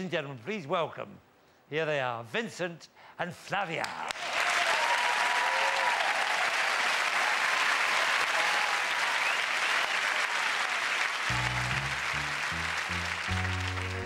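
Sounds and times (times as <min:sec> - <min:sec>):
audience applauding: 0:04.1 - 0:14.0
audience cheering: 0:04.2 - 0:14.0
piano chords: 0:11.3 - 0:14.0.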